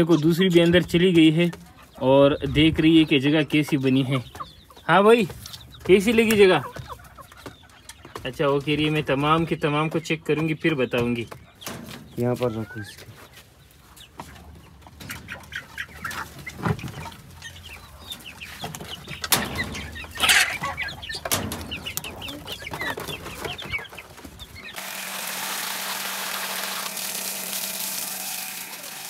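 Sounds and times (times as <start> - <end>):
hens clucking: 0.0 - 29.0
wire cage door rattling: 19.1 - 22.3.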